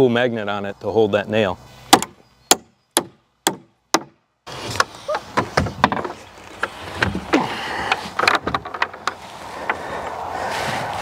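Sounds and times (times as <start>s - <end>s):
hammer striking nail: 1.9s - 4.2s
lumber knocking and thumping: 1.9s - 9.2s.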